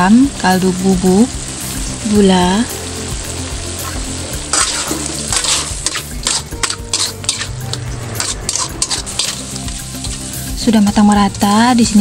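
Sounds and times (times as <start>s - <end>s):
sauce sizzling: 0.0s - 12.0s
metal spatula scraping a wok: 3.7s - 10.4s.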